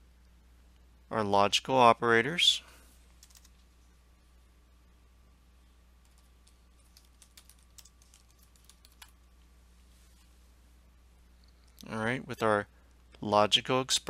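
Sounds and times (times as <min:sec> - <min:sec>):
low steady hum: 0:00.0 - 0:14.0
typing on computer keyboard: 0:03.2 - 0:03.6, 0:06.0 - 0:09.2.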